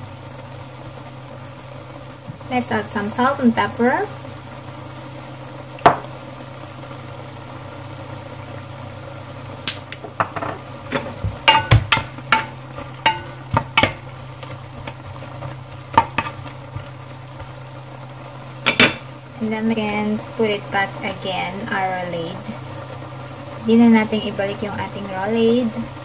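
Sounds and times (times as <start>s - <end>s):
sauce simmering in a pan: 0.0s - 26.0s
steady low hum: 0.0s - 26.0s
wooden spatula stirring: 10.9s - 17.8s.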